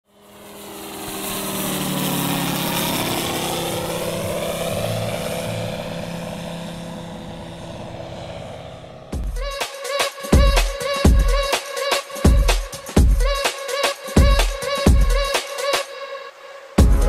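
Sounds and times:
model airplane propeller engine: 0.1 - 12.9.

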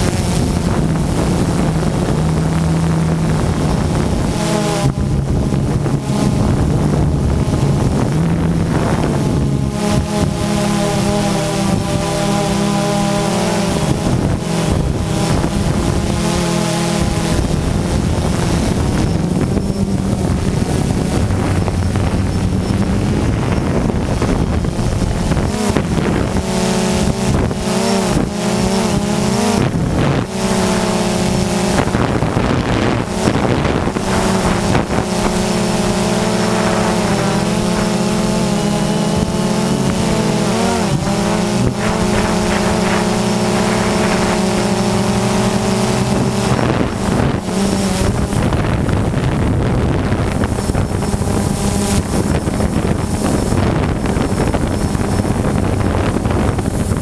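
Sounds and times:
drone propellers buzzing: 0.0 - 57.0.

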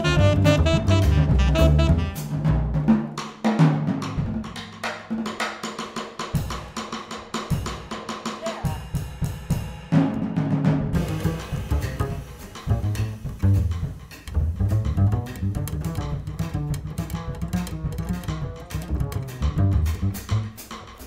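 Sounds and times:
low bass notes: 0.0 - 2.8, 11.0 - 20.6
jazz quartet playing: 0.0 - 2.9, 11.0 - 20.8
drum solo: 0.0 - 21.0.

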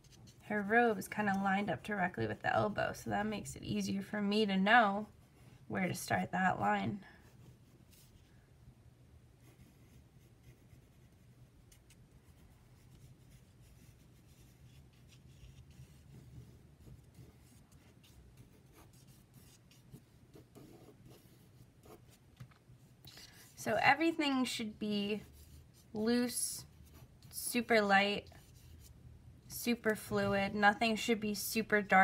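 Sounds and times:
pencil scratching on paper: 9.4 - 22.2, 24.4 - 29.0.

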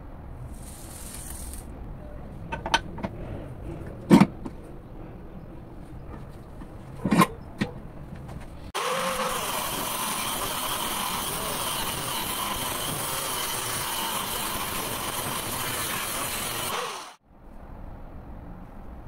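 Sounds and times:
cut-off wheel grinding steel: 8.6 - 17.2.

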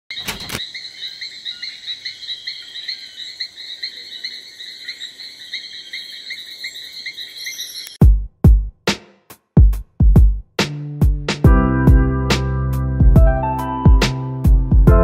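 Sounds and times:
high-pitched pulsing insect: 0.1 - 8.0
insect chirping steadily: 0.1 - 8.0.

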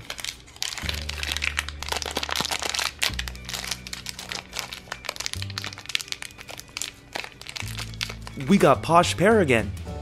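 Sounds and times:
wrapper crinkling: 0.0 - 8.9
background music with bass notes: 7.6 - 10.0.

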